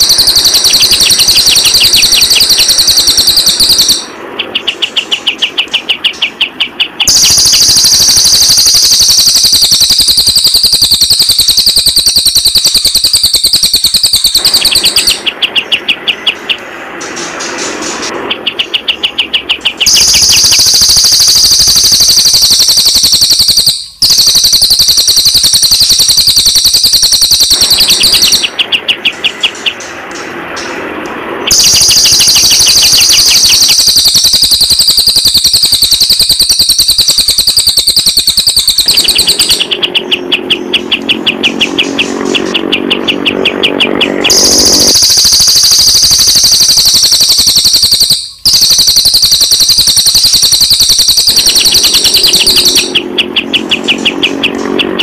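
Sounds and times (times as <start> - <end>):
birds trilling: 39.0 - 44.9, 52.5 - 55.0.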